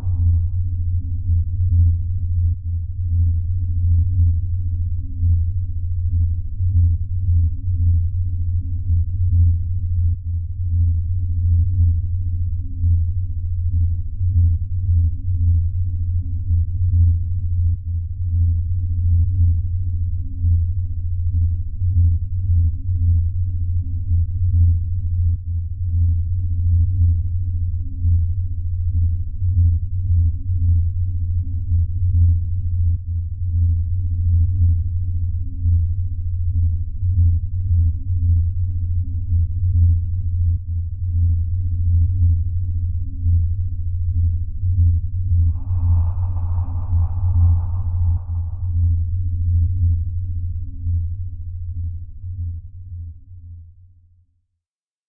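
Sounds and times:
dark ambient drone music: 0:45.4 - 0:49.2.

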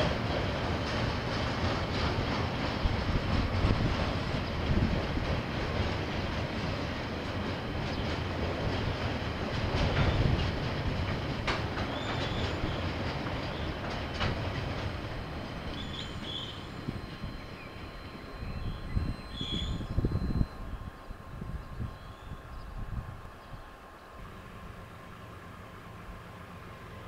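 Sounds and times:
freight train wagons rumbling: 0:00.0 - 0:27.0
sharp clicks of wagons: 0:05.2 - 0:18.4.

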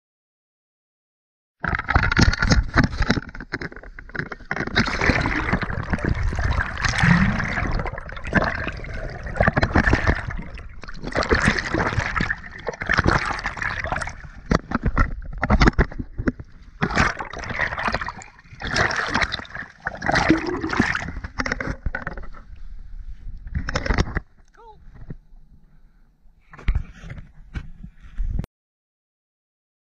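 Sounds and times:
sea water sloshing and gurgling: 0:01.6 - 0:24.4.

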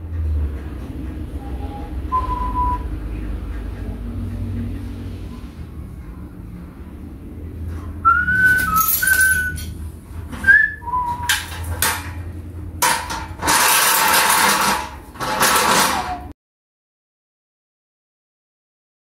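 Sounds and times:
whistled notes: 0:01.4 - 0:03.0, 0:08.0 - 0:09.7, 0:10.4 - 0:11.5
metal treadle stand rattling: 0:08.4 - 0:16.3.

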